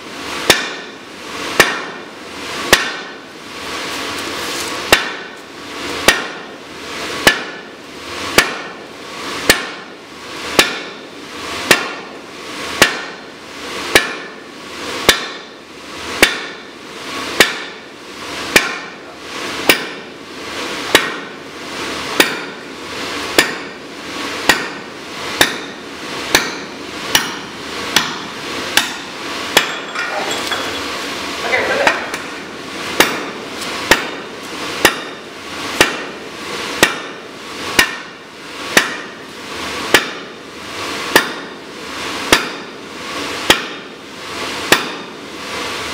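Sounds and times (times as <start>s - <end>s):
sledgehammer striking metal: 0.4s - 0.9s, 1.5s - 2.0s, 2.7s - 3.2s, 4.9s - 5.4s, 6.0s - 6.5s, 7.2s - 7.7s, 8.3s - 8.8s, 9.4s - 9.9s, 10.5s - 11.0s, 11.6s - 12.1s, 12.8s - 13.2s, 13.9s - 14.4s, 15.0s - 15.6s, 16.2s - 16.7s, 17.3s - 17.8s, 18.5s - 19.0s, 19.6s - 20.1s, 20.9s - 21.4s, 22.2s - 22.7s, 23.3s - 23.8s, 24.4s - 30.9s, 31.8s - 34.2s, 34.8s - 36.2s, 36.8s - 39.2s, 39.9s - 40.3s, 41.1s - 41.6s, 42.3s - 42.7s, 43.4s - 43.9s, 44.7s - 45.1s.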